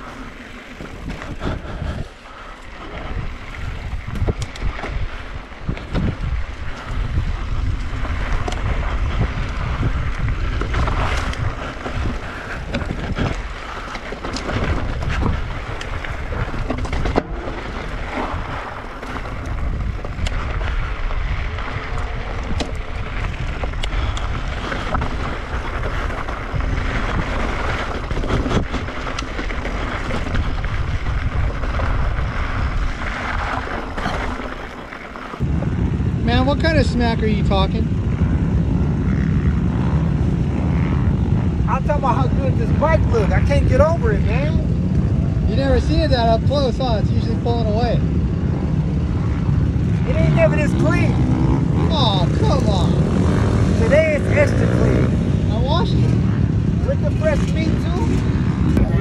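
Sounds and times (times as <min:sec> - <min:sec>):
bike rattling clicks and knocks: 0:00.0 - 0:35.4
tyres on dirt: 0:00.0 - 0:59.0
wind buffeting microphone: 0:00.0 - 0:59.0.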